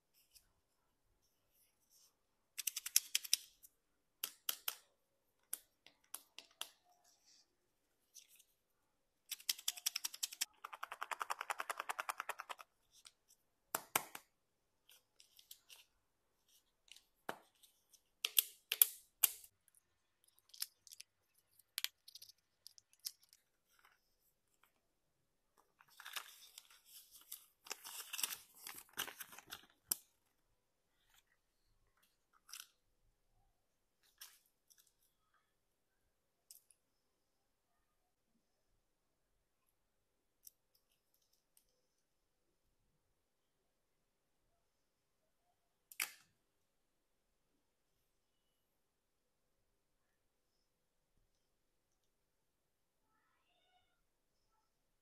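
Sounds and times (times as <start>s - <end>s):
paper leaflet rustling: 25.8s - 30.0s.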